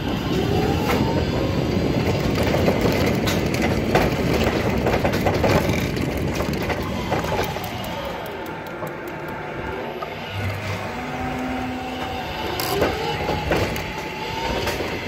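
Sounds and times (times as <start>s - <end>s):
truck rolling with rumble and rattle: 0.0s - 15.0s
electric motor whine: 9.8s - 14.6s.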